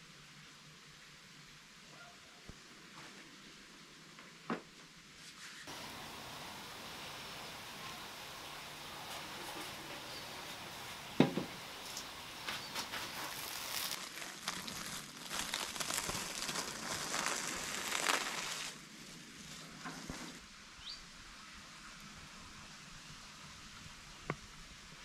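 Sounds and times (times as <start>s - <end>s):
cling film crinkling: 5.7s - 20.4s.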